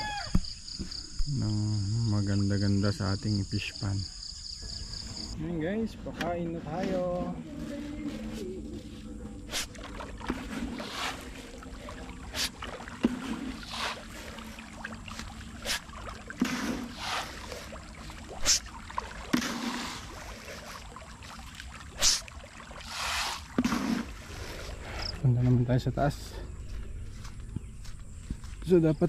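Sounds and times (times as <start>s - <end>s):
pellets splashing on water: 9.4s - 24.8s.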